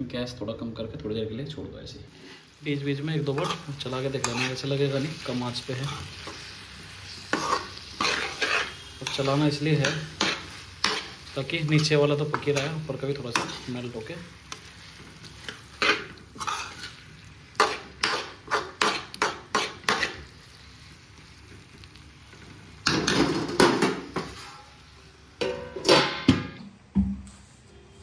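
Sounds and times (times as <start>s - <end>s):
metal spoon scraping a pan: 3.2s - 20.3s
steel lid clattering on pan: 25.4s - 26.5s.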